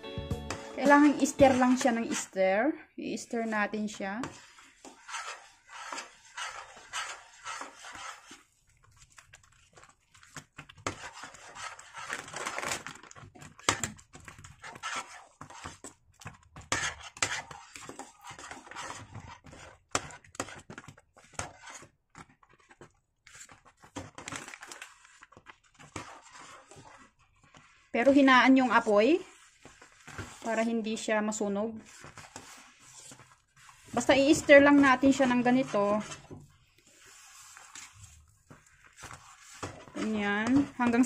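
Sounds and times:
metal spoon scraping pot: 0.5 - 2.5, 3.4 - 8.6, 13.4 - 21.9, 31.8 - 38.2, 38.8 - 41.0.

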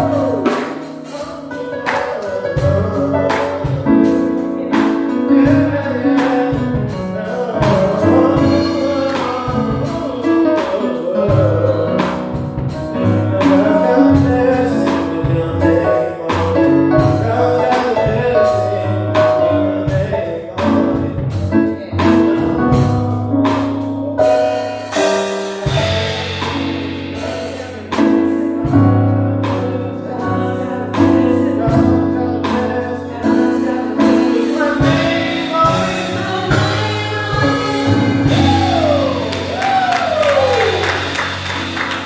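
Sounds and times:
instrumental accompaniment: 0.0 - 42.0
women singing gospel: 33.1 - 41.1.

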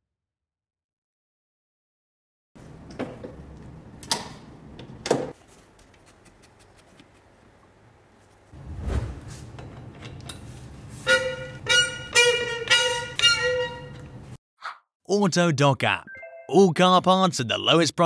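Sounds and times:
wheel bolt squealing: 9.6 - 14.2.

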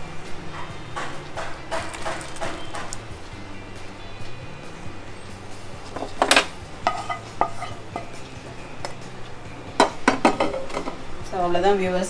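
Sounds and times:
cookware clatter: 6.0 - 8.2, 9.8 - 11.0.

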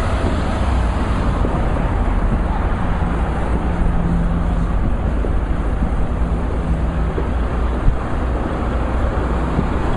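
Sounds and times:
highway traffic rumble: 0.0 - 9.9.

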